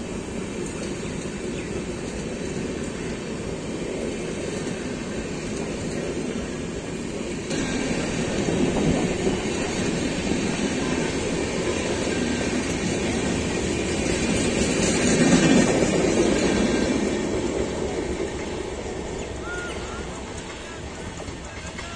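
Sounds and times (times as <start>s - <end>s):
train coaches rolling past: 0.0s - 21.9s.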